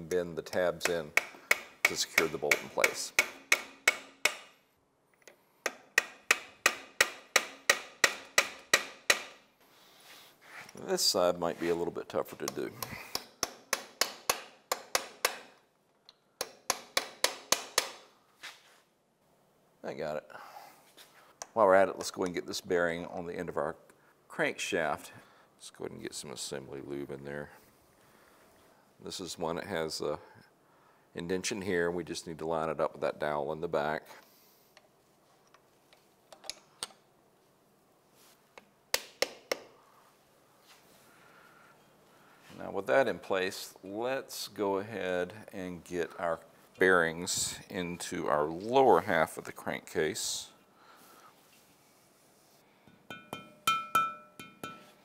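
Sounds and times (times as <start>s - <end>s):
metal clicks and taps: 34.8s - 37.0s
light hammer taps on metal: 52.9s - 54.9s.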